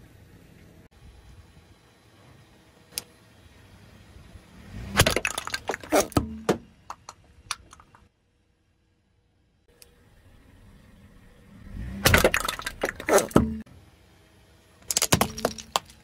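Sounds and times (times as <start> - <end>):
wooden dolls cracking and snapping: 5.0 - 6.2, 14.9 - 16.0
tyre crunching: 5.0 - 7.0, 12.1 - 13.6.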